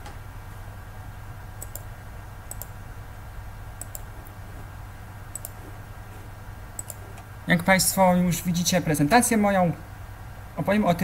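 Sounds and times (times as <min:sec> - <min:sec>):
steady low hum: 0:00.0 - 0:11.0
computer mouse clicks: 0:01.6 - 0:01.9, 0:02.5 - 0:02.8, 0:03.8 - 0:04.4, 0:05.3 - 0:05.6, 0:06.8 - 0:07.3.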